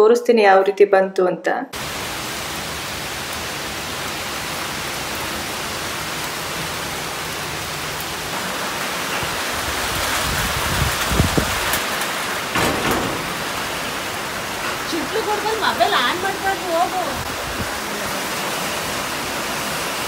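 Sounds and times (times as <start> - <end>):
rain in strong wind: 1.8 - 20.0
low thumps: 12.5 - 14.8.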